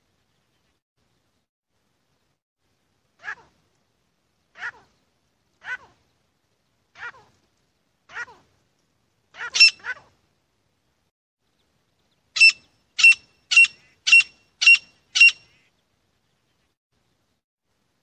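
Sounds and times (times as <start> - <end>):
francolin calling: 9.4 - 10.0, 12.4 - 15.7.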